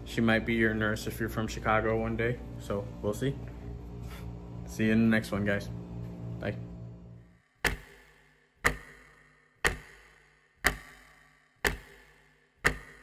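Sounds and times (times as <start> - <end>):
clock ticking: 7.6 - 13.0.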